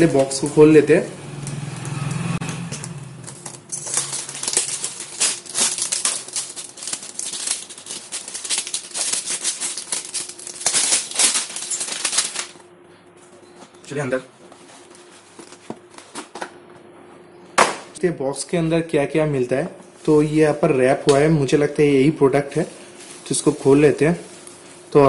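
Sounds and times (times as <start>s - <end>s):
plastic packaging crinkling and tearing: 3.2s - 12.6s, 22.5s - 25.0s.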